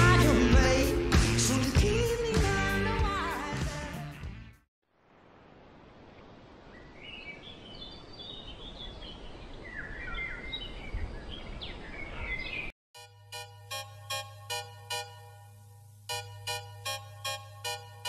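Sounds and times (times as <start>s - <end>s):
songbirds chirping and singing: 7.1s - 12.7s
synthesizer music: 13.0s - 18.0s.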